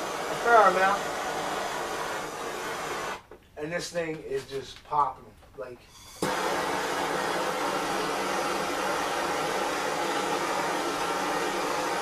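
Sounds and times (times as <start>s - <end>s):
propane torch hissing: 0.0s - 3.3s, 5.9s - 12.0s.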